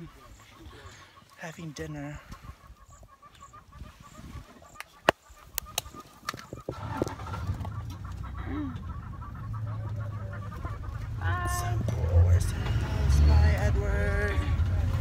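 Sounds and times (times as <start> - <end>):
vehicle engine rumbling: 6.3 - 15.0.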